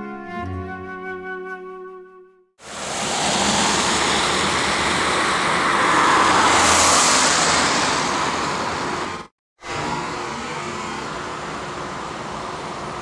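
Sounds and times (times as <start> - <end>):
vehicle driving past: 2.6 - 11.2.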